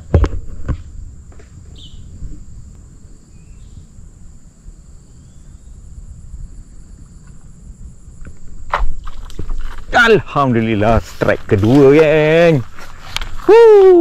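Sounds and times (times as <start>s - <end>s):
wind on microphone: 0.0s - 14.0s
high-pitched insect drone: 0.8s - 9.1s
faint chirp: 3.3s - 3.9s.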